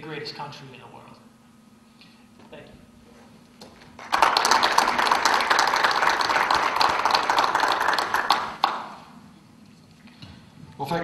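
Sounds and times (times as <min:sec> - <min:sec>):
audience applauding: 0:03.8 - 0:09.1.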